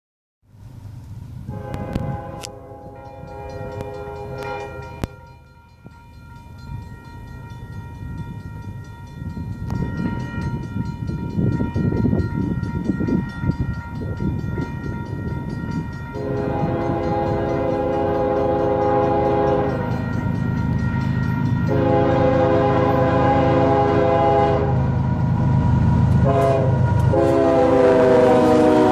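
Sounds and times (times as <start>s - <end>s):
locomotive rumble: 0.5s - 28.9s
train air horn blast: 1.5s - 5.2s, 16.2s - 19.9s, 21.7s - 24.9s, 26.2s - 28.9s.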